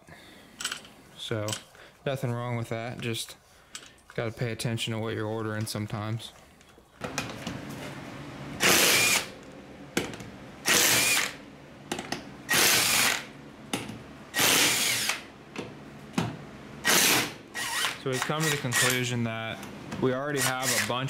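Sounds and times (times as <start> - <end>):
power tool bursts: 8.6 - 9.3, 10.6 - 11.4, 12.5 - 13.3, 14.3 - 15.3, 16.8 - 19.1, 20.4 - 21.0.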